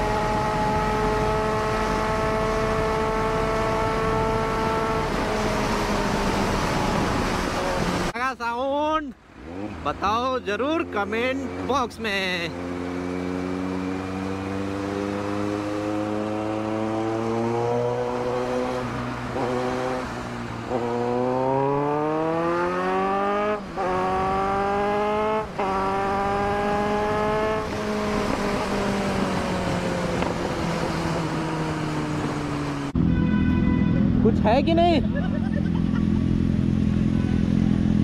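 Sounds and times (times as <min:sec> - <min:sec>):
motorcycle engine accelerating: 0:00.0 - 0:08.1, 0:09.4 - 0:33.0, 0:33.9 - 0:38.0
wind rush: 0:25.6 - 0:33.0.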